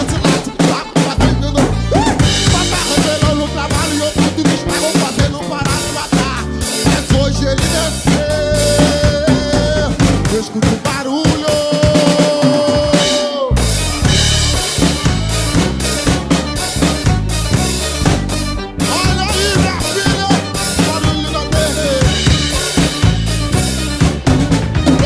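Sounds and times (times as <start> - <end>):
drum kit playing: 0.0 - 25.0
recorded gospel song with singer: 0.0 - 25.0.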